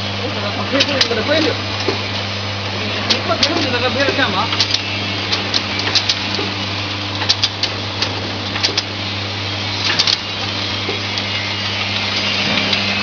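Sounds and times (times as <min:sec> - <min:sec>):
machine motor hum: 0:00.0 - 0:13.0
sharp mechanical clicks: 0:04.5 - 0:06.4, 0:07.2 - 0:08.9.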